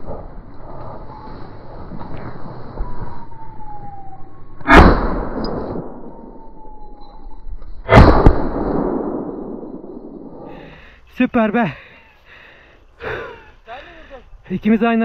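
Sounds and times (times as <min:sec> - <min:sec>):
thin falling whistle tone: 0:01.0 - 0:04.6, 0:05.4 - 0:07.9
shotgun shots with echo: 0:04.7 - 0:06.0, 0:07.9 - 0:09.6.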